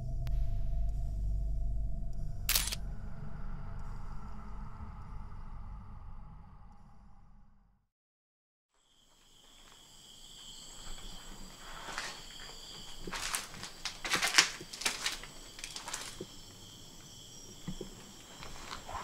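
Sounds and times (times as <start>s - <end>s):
footsteps crunching over rubble: 9.0s - 19.0s.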